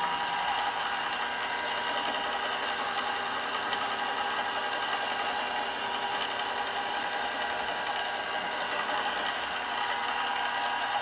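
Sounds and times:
milling machine drilling brass: 0:00.0 - 0:11.0.

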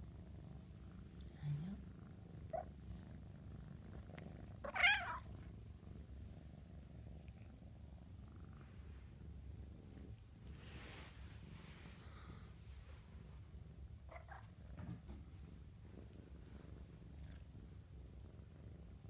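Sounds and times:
kitten purring: 0:00.0 - 0:19.0
kitten mewing: 0:04.6 - 0:05.2.

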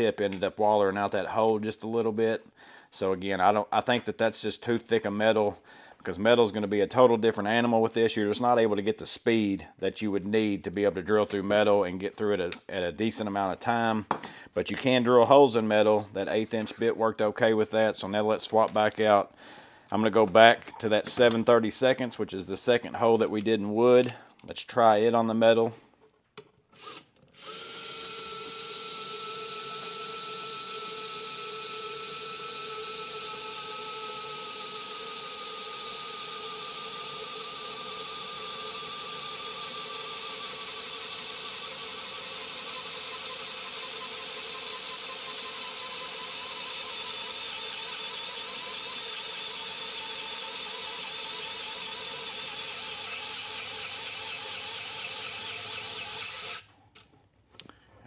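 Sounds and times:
electric screwdriver drilling into metal: 0:26.8 - 0:56.7.

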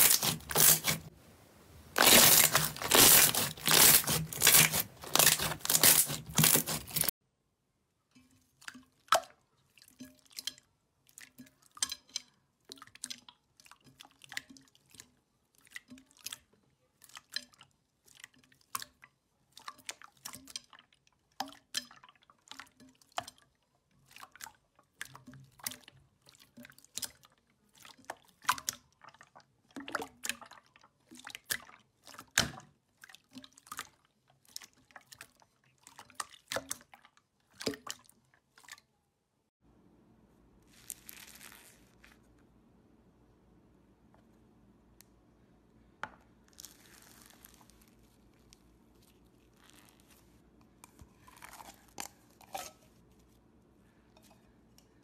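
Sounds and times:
slime squeezed with wet pops: 0:00.0 - 0:01.1, 0:01.9 - 0:07.1.

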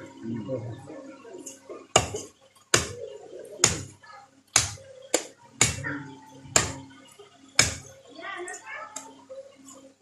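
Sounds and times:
cleaver chopping on wooden block: 0:02.0 - 0:03.0, 0:04.6 - 0:05.8, 0:07.6 - 0:07.9.

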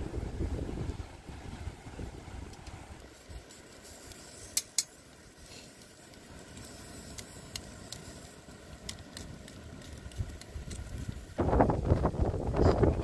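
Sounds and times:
campfire embers crackling: 0:00.0 - 0:13.0.

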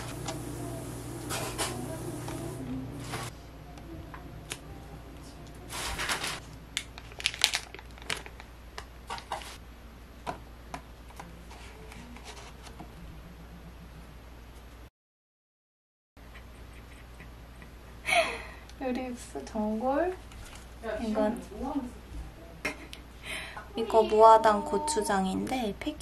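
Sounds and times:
plastic packaging rustling: 0:05.7 - 0:09.6.

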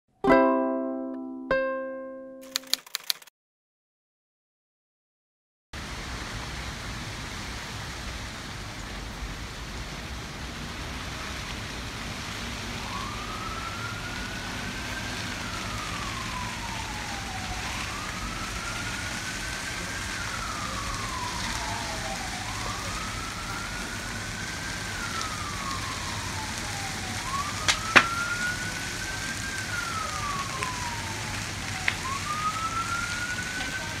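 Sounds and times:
emergency siren wailing: 0:10.6 - 0:34.0
sharp pops: 0:27.6 - 0:28.3.

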